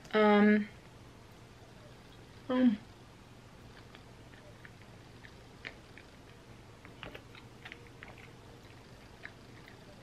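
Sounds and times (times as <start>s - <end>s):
chewing ice cream: 3.6s - 10.0s.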